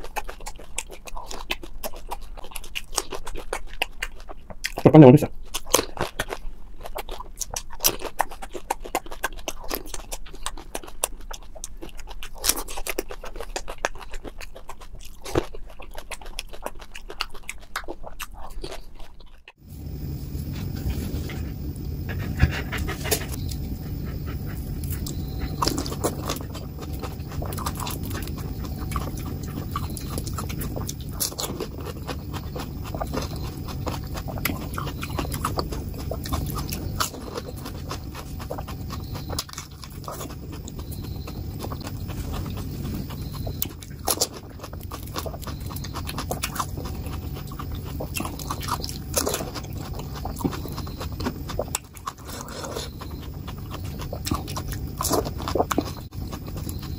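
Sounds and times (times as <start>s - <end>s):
wet mouth clicks: 0.0s - 4.8s
crunchy chewing: 0.0s - 56.9s.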